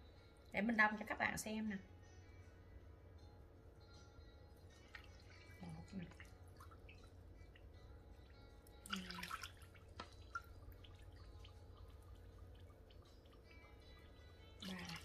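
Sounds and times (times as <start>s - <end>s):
water pouring into plastic jug: 8.7s - 15.0s.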